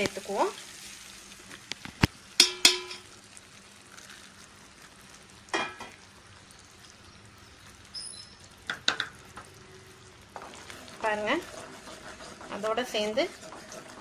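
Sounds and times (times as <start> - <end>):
pan sizzling faintly: 0.0 - 14.0.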